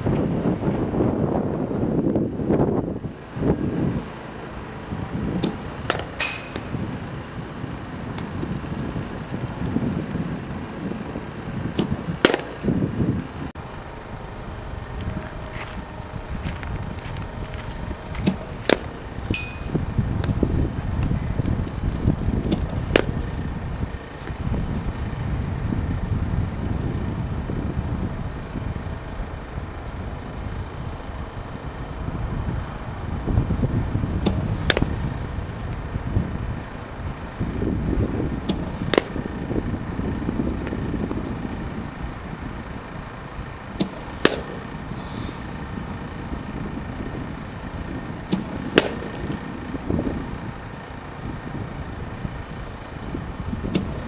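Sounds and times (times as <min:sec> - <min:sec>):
bat hitting softball: 0:05.4 - 0:07.0, 0:11.8 - 0:12.7, 0:18.2 - 0:20.4, 0:22.5 - 0:23.4, 0:34.2 - 0:35.0, 0:38.5 - 0:39.4, 0:43.7 - 0:45.5, 0:48.3 - 0:49.6, 0:53.7 - 0:54.0.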